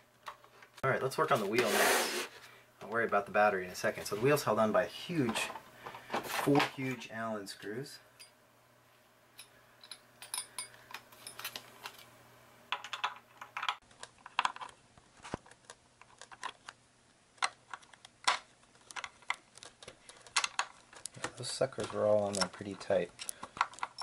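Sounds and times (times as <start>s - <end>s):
allen key clicking on screws: 23.2s - 24.0s.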